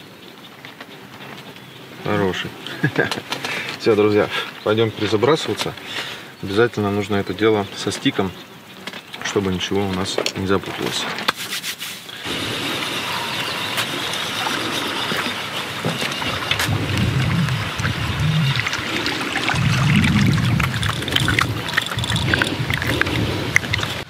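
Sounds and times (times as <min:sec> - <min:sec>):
wind buffeting microphone: 0:12.2 - 0:24.0
fishing reel being cranked: 0:19.6 - 0:24.0.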